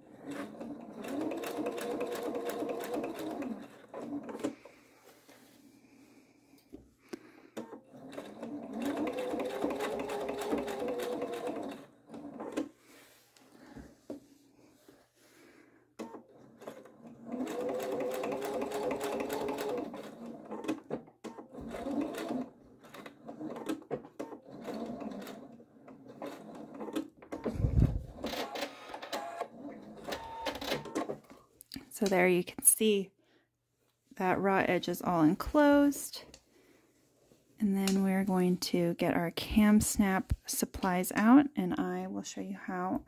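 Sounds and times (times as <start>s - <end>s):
sewing machine stitching: 0.0s - 4.7s, 7.6s - 12.8s, 16.0s - 31.4s.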